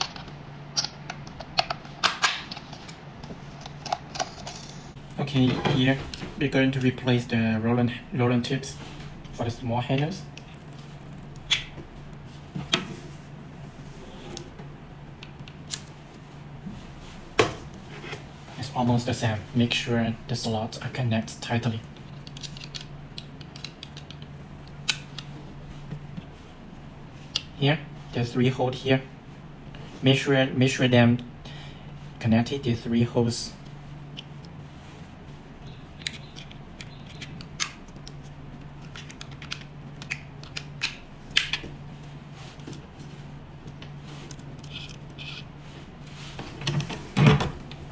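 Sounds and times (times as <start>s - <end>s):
low steady hum: 0.0s - 47.9s.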